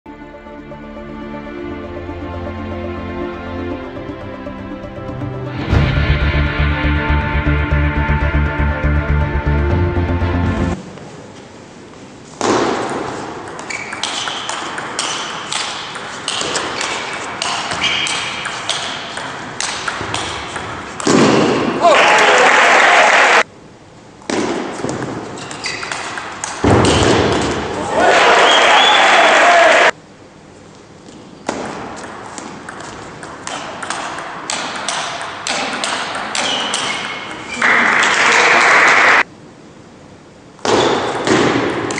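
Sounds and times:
loud sound cut off: 0.1 - 10.8
table tennis ball hits: 12.4 - 21.8, 24.3 - 27.7, 31.4 - 39.0, 40.6 - 41.9.

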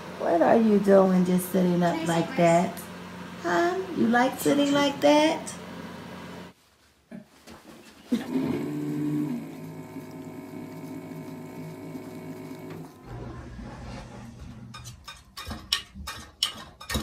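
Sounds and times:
humidifier humming: 0.0 - 13.9.

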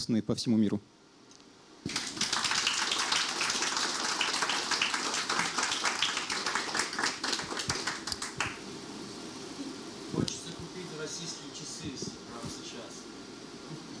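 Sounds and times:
audience applauding: 1.9 - 8.6.

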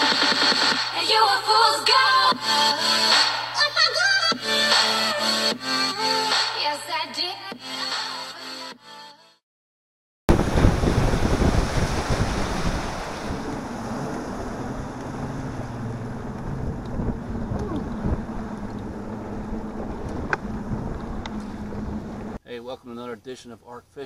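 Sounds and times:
low motor hum: 10.3 - 22.4
water rushing past hull: 10.3 - 22.4
wind buffeting microphone: 10.3 - 22.4.

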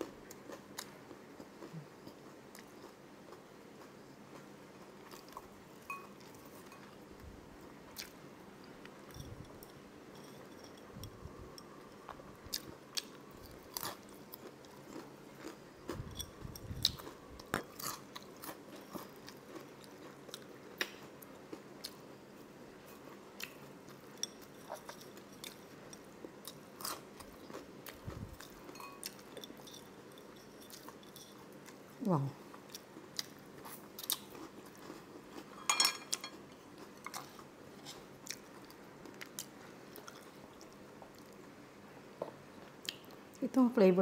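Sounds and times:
crunchy chewing: 7.9 - 31.9, 32.5 - 41.5.

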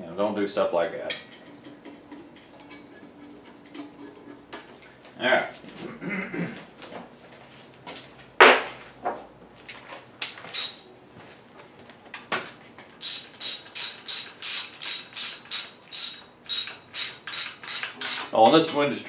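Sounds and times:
hand ratchet clicking: 13.0 - 18.4.

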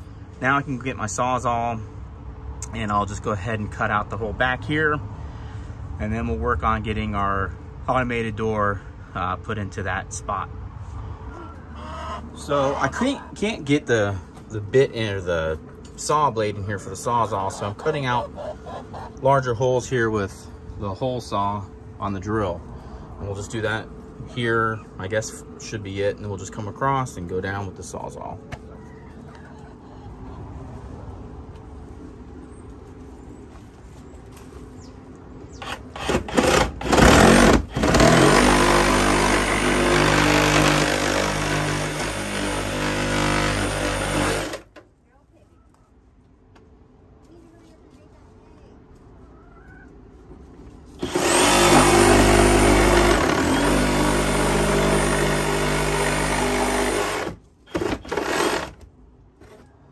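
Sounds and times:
reciprocating saw cutting wood: 35.6 - 44.7, 51.0 - 58.8.

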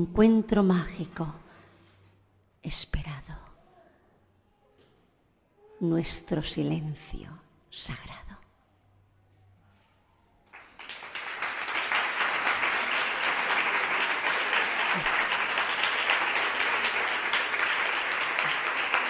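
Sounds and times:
audience applauding: 10.5 - 19.0.

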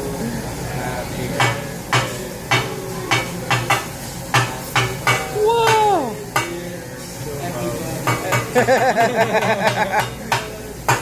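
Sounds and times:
low sizzle: 0.0 - 11.0
metal utensils clanking on griddle: 1.4 - 7.2, 8.0 - 11.0
person calling out: 5.4 - 6.2.

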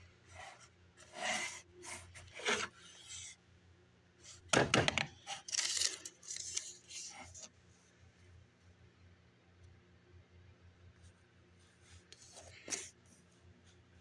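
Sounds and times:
paper tag rustling: 5.3 - 7.5.

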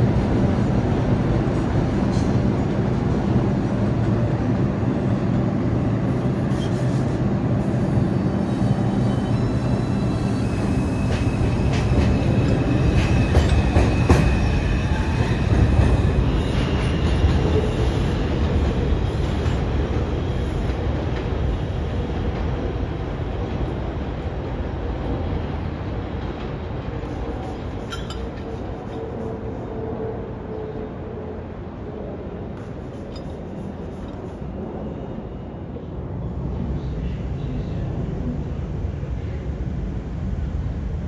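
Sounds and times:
subway train rumbling: 0.0 - 41.0
wheel squeal: 8.4 - 15.4.

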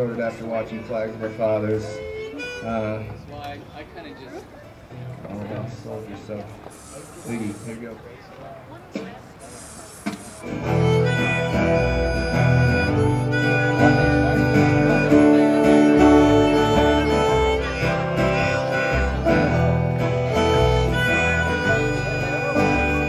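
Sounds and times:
strummed acoustic guitar: 10.0 - 23.0
melody of held notes: 10.5 - 23.0
plucked upright bass: 10.5 - 23.0.

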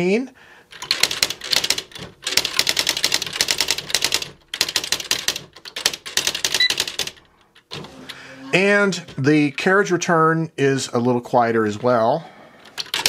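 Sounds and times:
electronic typewriter printing: 0.8 - 9.6.

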